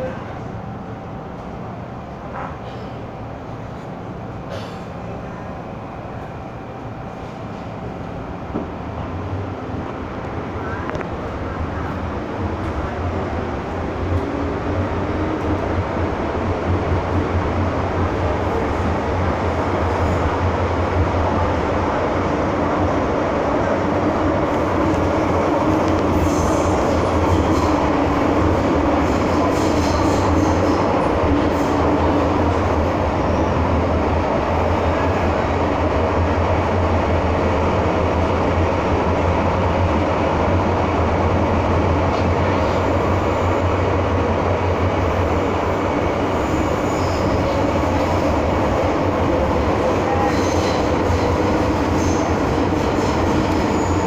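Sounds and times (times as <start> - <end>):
train wheels and motors rumbling: 0.0 - 54.0
high wheel squeals: 46.4 - 47.6, 53.0 - 54.0.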